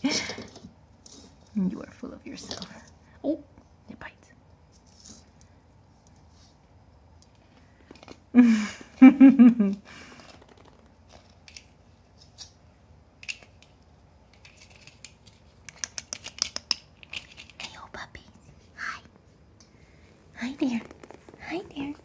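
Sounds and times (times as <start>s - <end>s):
puppies clicking plastic ornaments: 13.2s - 17.8s.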